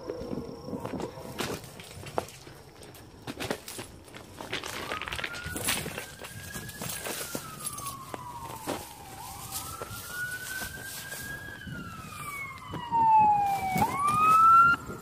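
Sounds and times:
footsteps in dry grass and sand: 0.0s - 15.0s
emergency siren wailing: 4.6s - 15.0s.

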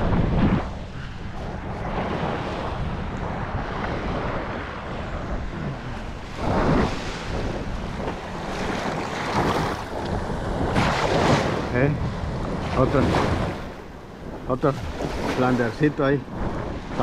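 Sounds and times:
small waves washing on sand: 0.0s - 17.0s
wind buffeting microphone: 0.0s - 17.0s.

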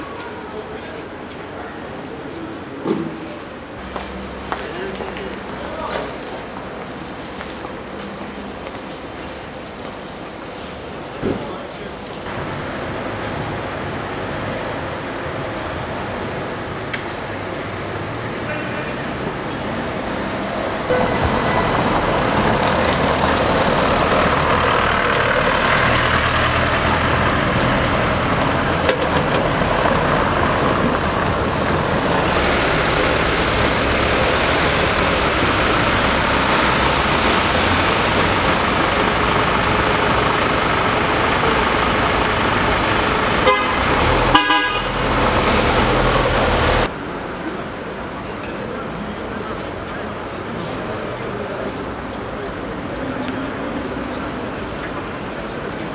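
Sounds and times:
cars driving past: 3.2s - 9.6s, 12.2s - 48.3s
car horns honking: 20.9s - 24.5s, 28.7s - 46.9s.

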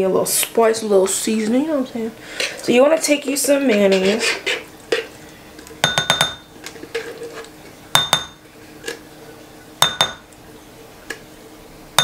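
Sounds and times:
spatula clinking on glass bowl: 5.8s - 6.5s, 7.9s - 8.4s, 9.8s - 10.2s.

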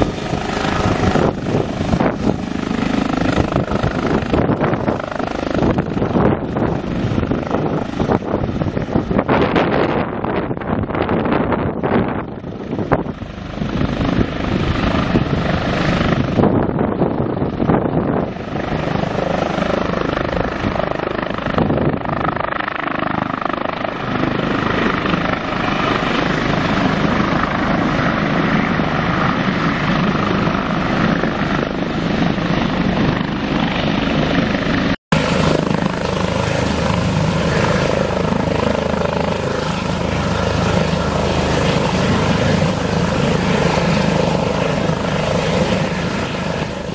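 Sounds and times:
helicopter rotor and turbine noise: 0.0s - 46.9s.

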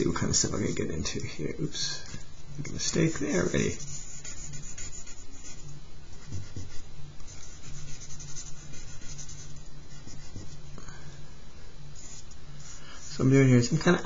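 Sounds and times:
charcoal scratching on paper: 0.0s - 1.0s, 2.6s - 10.6s.

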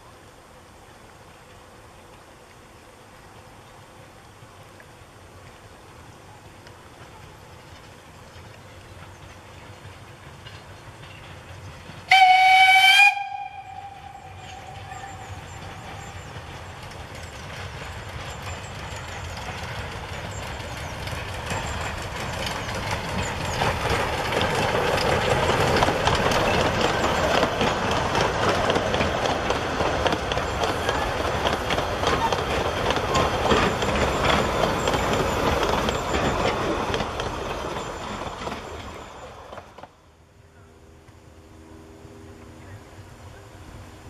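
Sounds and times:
train rumbling and clattering past: 0.0s - 44.0s
steam locomotive whistle: 12.1s - 16.2s.

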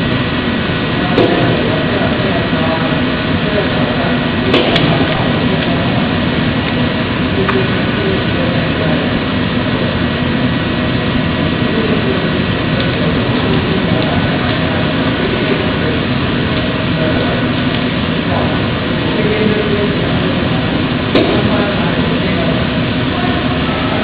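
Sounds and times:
workshop machinery hum and hiss: 0.0s - 24.0s.

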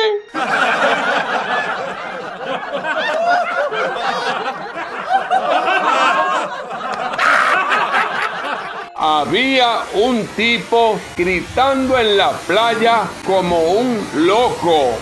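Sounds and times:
canned audience laughter: 0.3s - 9.0s.

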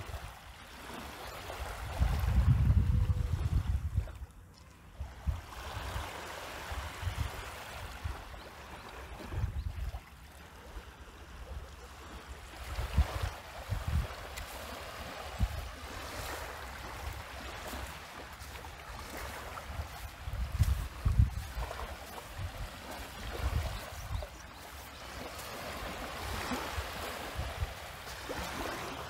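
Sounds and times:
wind buffeting microphone: 1.7s - 4.2s, 9.2s - 10.0s, 12.6s - 24.6s.

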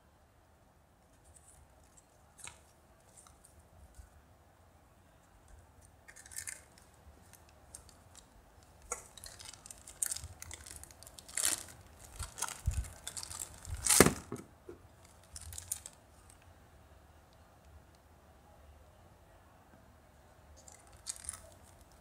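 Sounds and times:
plastic bag crinkling and tearing: 8.9s - 14.3s, 15.0s - 16.0s, 20.6s - 22.0s.

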